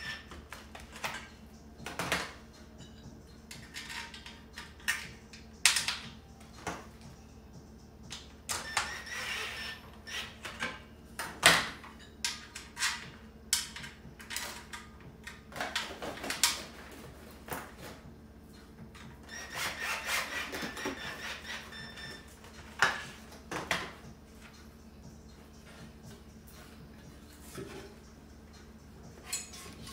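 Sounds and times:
metal and wood knocking and scraping: 27.0s - 29.9s.

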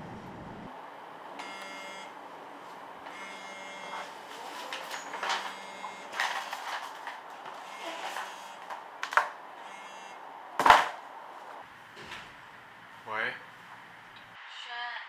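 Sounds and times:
paper pages rustling: 6.1s - 8.3s
short mechanical buzzes: 7.6s - 8.6s.

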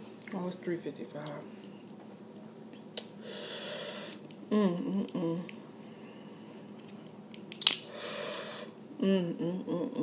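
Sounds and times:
person inhaling sharply: 3.2s - 4.2s, 7.9s - 8.8s.

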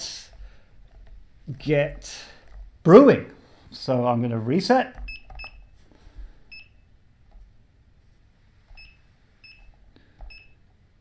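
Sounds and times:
digital scale beeping: 5.0s - 5.8s, 8.8s - 10.6s.

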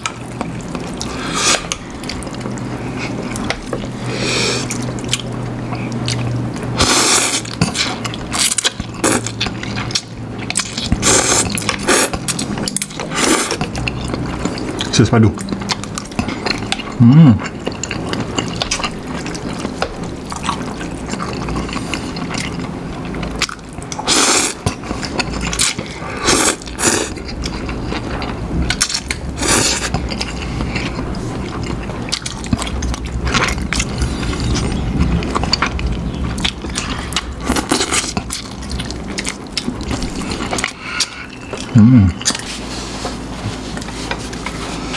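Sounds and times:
people slurping noodles: 1.0s - 1.8s, 13.1s - 13.7s, 24.0s - 24.6s, 25.6s - 27.2s
wet mouth sounds: 31.6s - 42.6s.

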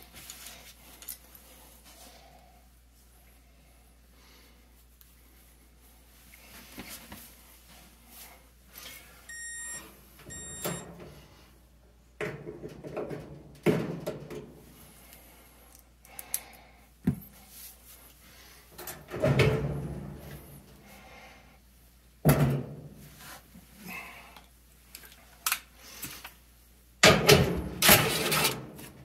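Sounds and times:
short electronic beeps: 9.3s - 10.8s.

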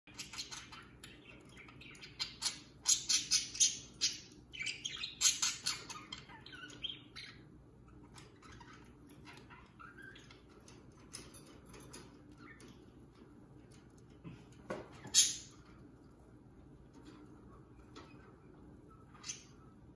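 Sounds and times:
budgerigars chirping: 0.1s - 10.7s.

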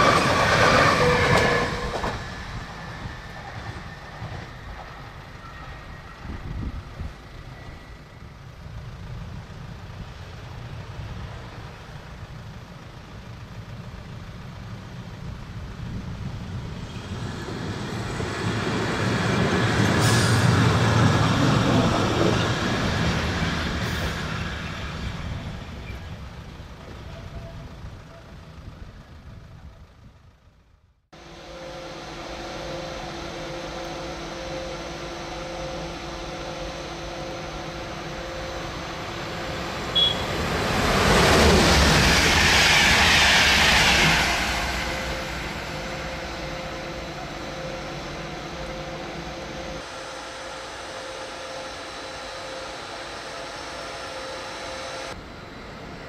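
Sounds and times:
electric locomotive humming: 0.0s - 56.0s.

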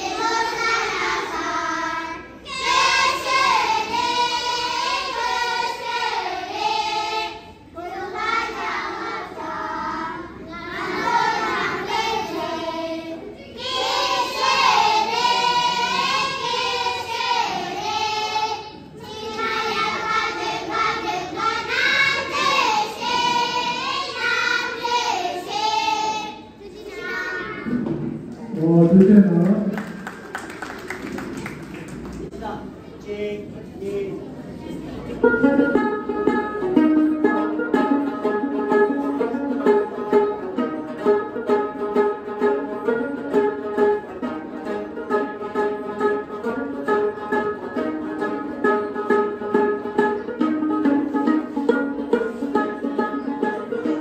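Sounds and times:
children singing: 0.0s - 27.9s.

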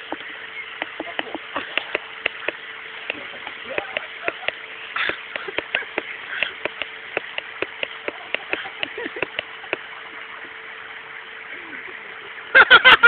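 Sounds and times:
wooden sticks clacking: 0.8s - 9.8s.

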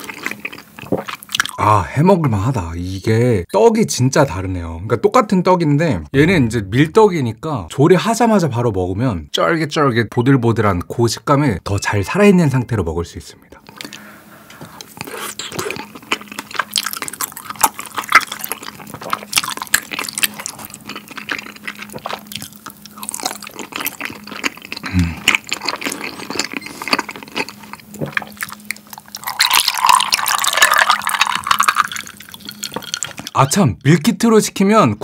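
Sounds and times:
chewing and slurping: 0.0s - 1.6s, 14.6s - 33.4s
drink poured into a glass: 29.2s - 33.4s.

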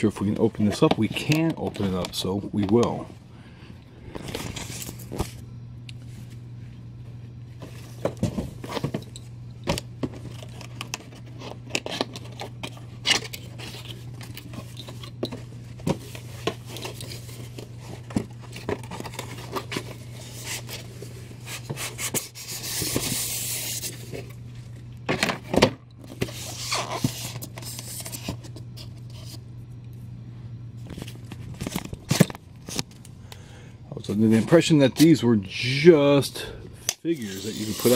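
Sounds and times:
steady low hum: 0.0s - 37.9s
packaging scraping and rustling: 10.0s - 24.4s, 26.1s - 29.4s, 37.1s - 37.9s.

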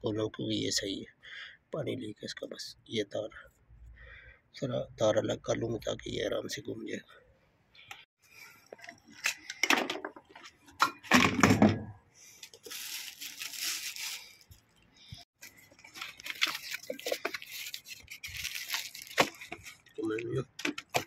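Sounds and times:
crackles: 12.3s - 21.0s
cardboard and plastic rustling: 12.4s - 21.0s.

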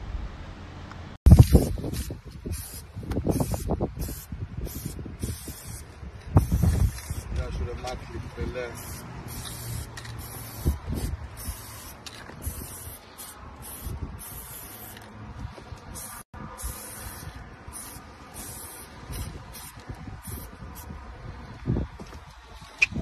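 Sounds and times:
spray paint can hissing: 1.3s - 7.4s, 8.8s - 15.1s, 15.9s - 20.9s.

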